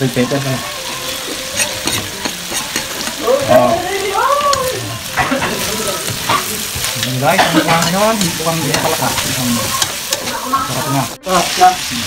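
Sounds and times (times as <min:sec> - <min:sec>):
meat sizzling in oil: 0:00.0 - 0:12.0
spatula scraping metal wok: 0:00.8 - 0:03.7, 0:05.1 - 0:12.0.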